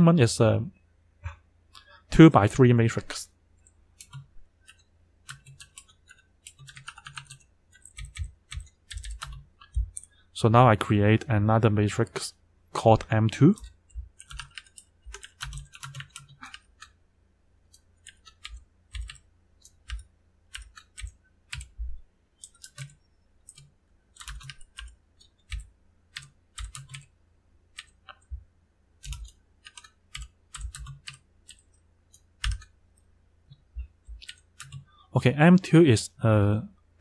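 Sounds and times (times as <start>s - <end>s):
typing on a computer keyboard: 4.0s - 10.1s, 13.6s - 17.0s, 17.7s - 21.8s, 22.4s - 27.1s, 27.7s - 28.2s, 29.0s - 32.8s, 34.1s - 34.9s.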